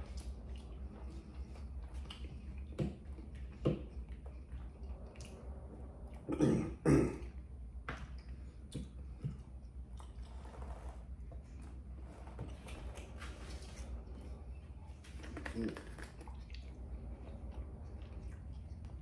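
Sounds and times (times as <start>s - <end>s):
steady low hum: 0.0s - 19.0s
man clearing throat: 6.3s - 7.3s.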